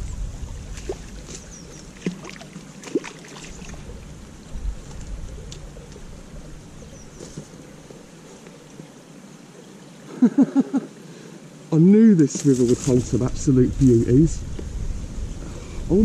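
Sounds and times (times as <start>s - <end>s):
wind buffeting microphone: 0.0s - 2.4s, 3.4s - 7.2s, 12.7s - 16.0s
stream water trickling: 0.0s - 10.1s
fish thrashing in water: 0.8s - 3.9s
faint bird chirps: 5.8s - 7.7s.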